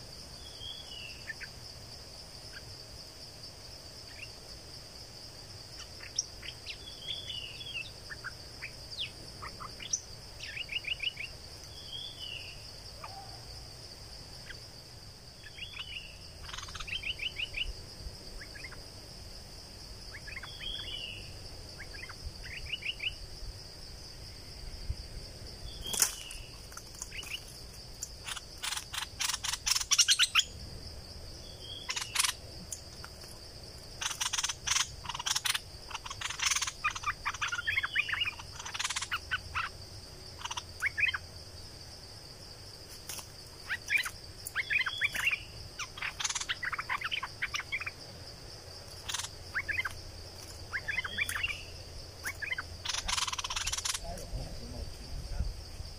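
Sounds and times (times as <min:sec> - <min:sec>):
high insect drone: 0:00.0 - 0:55.9
bulbuls chirping and calling: 0:15.5 - 0:17.6, 0:25.8 - 0:27.5, 0:28.2 - 0:30.5, 0:31.7 - 0:32.4, 0:34.0 - 0:39.7, 0:43.6 - 0:48.0, 0:48.9 - 0:54.4
rapid harsh bird notes: 0:31.6 - 0:32.4, 0:48.9 - 0:54.1.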